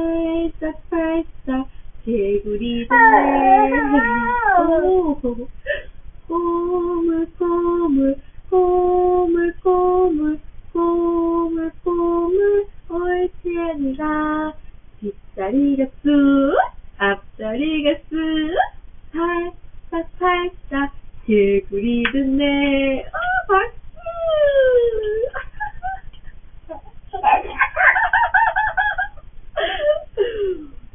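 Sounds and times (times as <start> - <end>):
woman singing: 0.0 - 5.5, 6.3 - 25.4
toddler vocal glides: 2.9 - 5.2.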